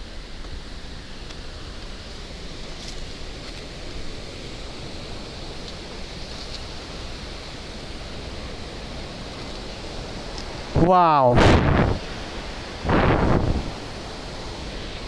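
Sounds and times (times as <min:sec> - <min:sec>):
river rapids rushing: 0:00.0 - 0:15.0.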